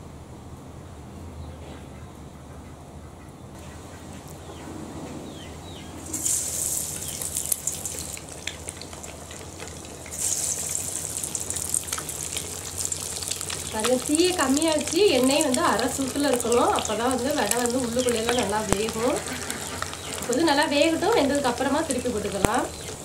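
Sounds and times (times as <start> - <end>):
food sizzling in hot oil: 6.0 - 23.0.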